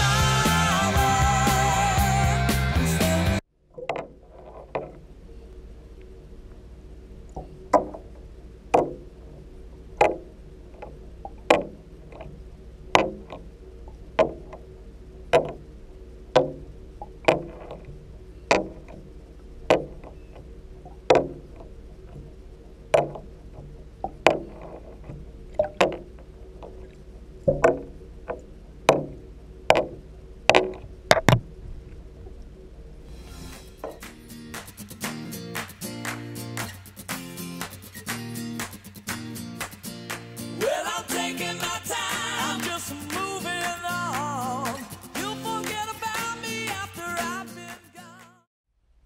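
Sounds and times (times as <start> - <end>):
steady low hum: 0.0 - 45.6
underwater knocks and splashes: 3.7 - 5.1, 7.3 - 9.3, 10.0 - 12.4, 13.0 - 14.7, 15.3 - 15.7, 16.3 - 32.4.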